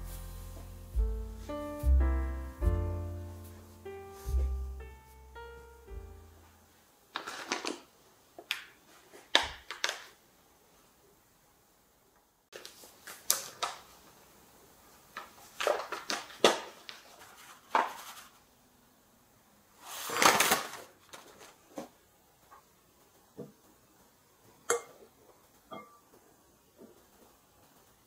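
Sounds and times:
paper bag rustling and crinkling: 7.1 - 7.9, 15.2 - 18.5, 19.8 - 22.0
ceramic bowl clinking: 25.7 - 26.0.

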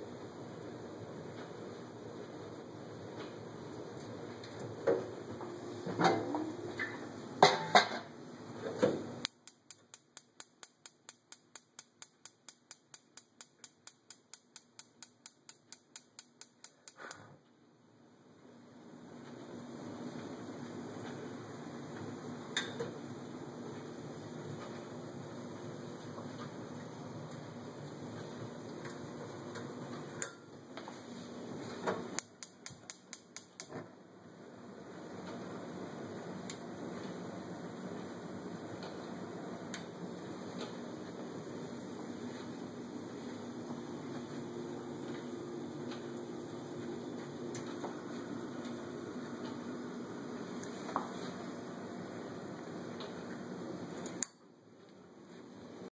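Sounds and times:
spark igniter clicking: 9.2 - 17.2, 32.2 - 33.7.

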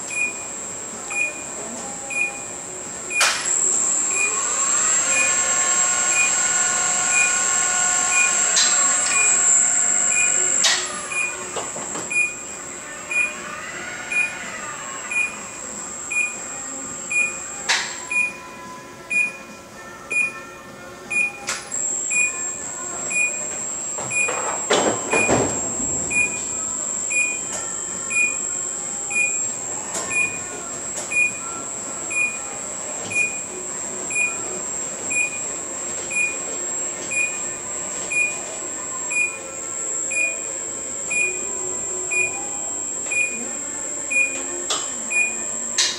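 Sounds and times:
machinery high whine: 2.1 - 45.9
warning beeper: 3.2 - 11.5, 14.1 - 14.5, 15.1 - 16.4.

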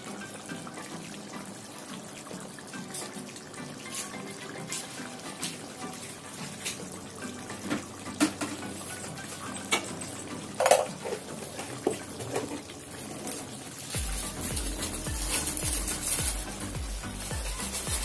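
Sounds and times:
curry bubbling in a pan: 0.0 - 17.8
music with bass beat: 14.0 - 18.0.

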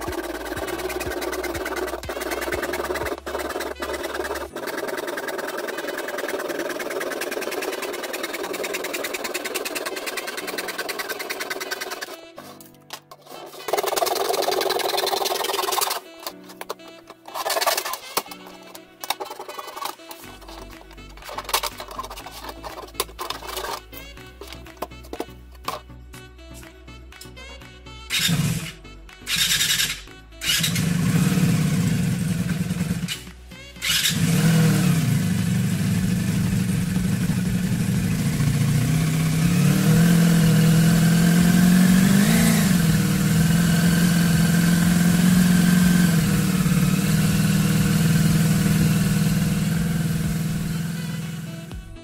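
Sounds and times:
engine revving: 0.0 - 12.2, 28.1 - 51.7
motorcycle engine starting and idling: 0.0 - 12.4, 13.4 - 25.8, 28.1 - 51.8.

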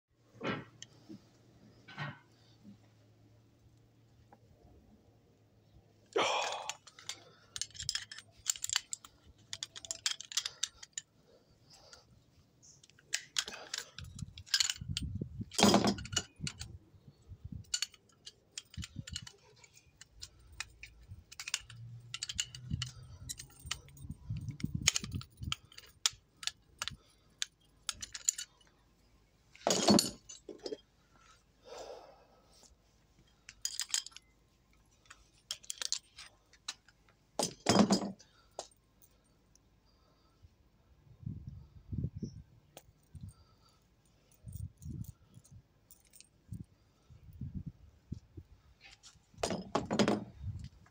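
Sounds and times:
wrenches clinking on metal fitting: 6.3 - 28.8, 29.5 - 30.9, 33.3 - 34.3, 34.9 - 39.2, 48.8 - 50.8.

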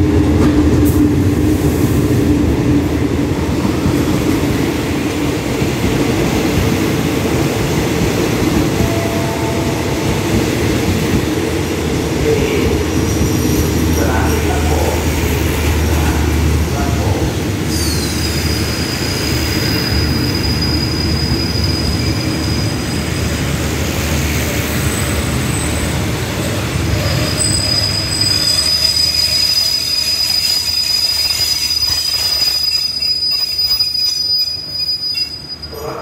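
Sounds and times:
train wheels squealing: 17.7 - 23.4, 24.7 - 36.0.

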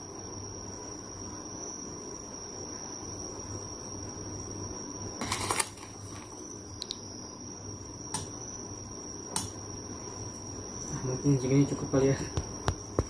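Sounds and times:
foil bag rustling: 5.2 - 6.4.

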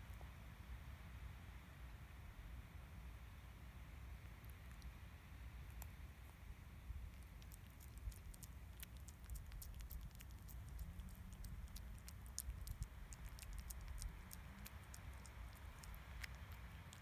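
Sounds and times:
cat chewing wet food: 4.3 - 17.0.

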